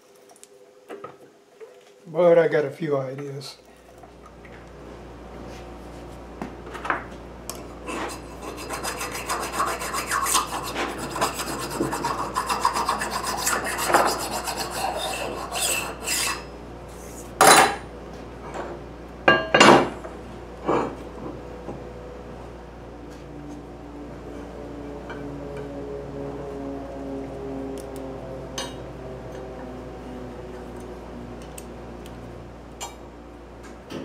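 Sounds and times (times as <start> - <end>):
rubbing and scraping on steel: 7.8 - 16.5.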